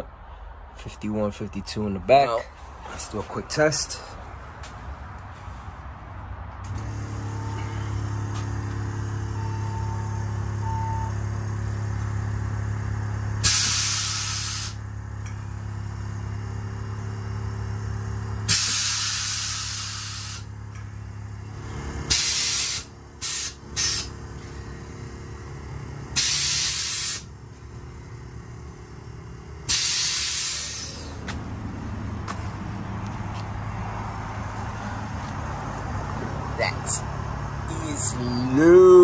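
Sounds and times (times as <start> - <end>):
air suspension valves hissing: 13.3 - 31.5.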